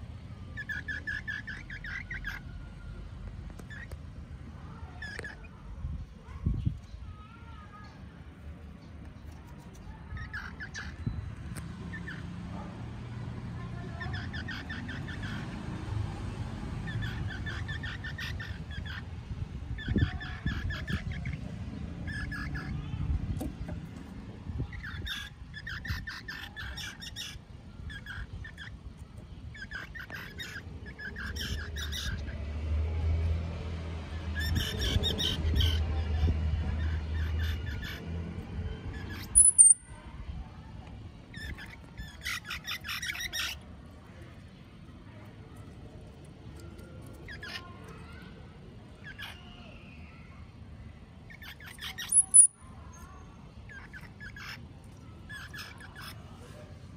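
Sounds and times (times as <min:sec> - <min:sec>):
baby squirrels squeaking and chirping: 0:00.5 - 0:02.7, 0:03.4 - 0:05.6, 0:09.3 - 0:12.5, 0:13.8 - 0:15.7, 0:16.8 - 0:32.5, 0:34.1 - 0:40.1, 0:41.2 - 0:43.9, 0:46.2 - 0:50.3, 0:51.2 - 0:56.5
small animal chirping: 0:03.6 - 0:04.0, 0:38.9 - 0:40.0, 0:41.3 - 0:43.6, 0:51.3 - 0:53.1.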